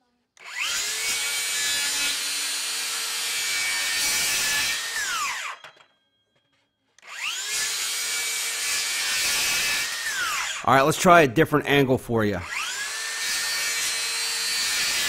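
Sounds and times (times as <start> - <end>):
circular saw cutting: 0.4 - 5.8, 7.0 - 10.9, 12.4 - 15.0.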